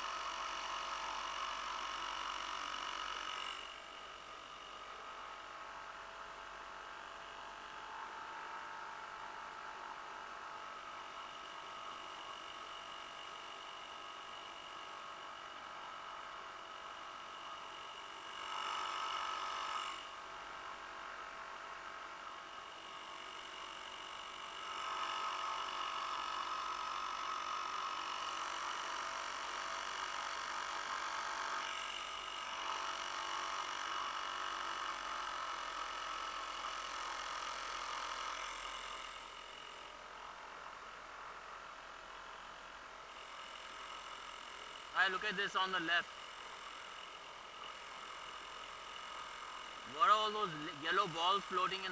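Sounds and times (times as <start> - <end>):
outboard motor buzzing: 14.3 - 40.4.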